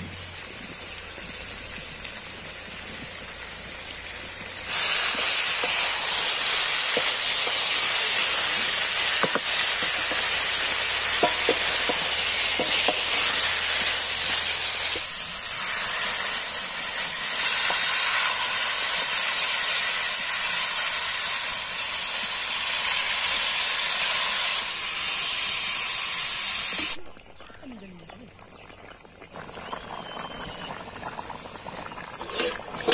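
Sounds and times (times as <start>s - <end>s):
food sizzling in wok: 0.0s - 27.0s, 29.4s - 32.9s
curry boiling with steamy hiss: 0.0s - 32.9s
water pouring: 26.8s - 32.9s.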